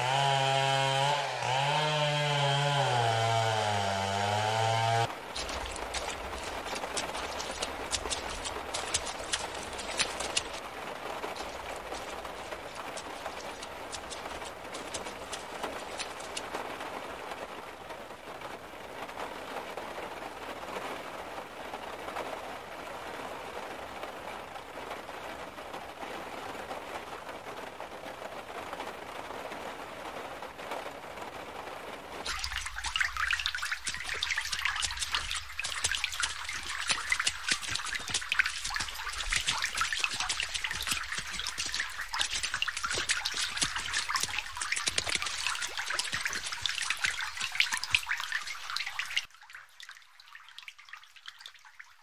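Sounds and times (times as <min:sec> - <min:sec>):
running floodwater hiss: 0:00.0 - 0:17.5, 0:32.2 - 0:49.3
rain: 0:00.0 - 0:52.0.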